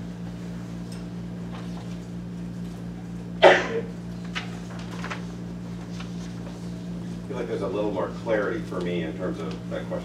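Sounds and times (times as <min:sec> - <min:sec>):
steady low hum: 0:00.0 - 0:10.0
person coughing: 0:03.4 - 0:03.9.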